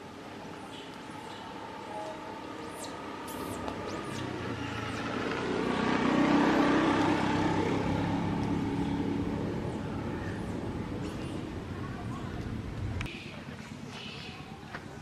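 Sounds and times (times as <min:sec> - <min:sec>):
vehicle driving past: 0:01.5 - 0:11.6.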